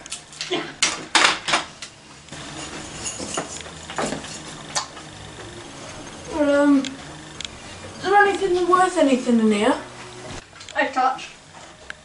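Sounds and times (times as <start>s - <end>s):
objects clattering: 2.4s - 5.1s.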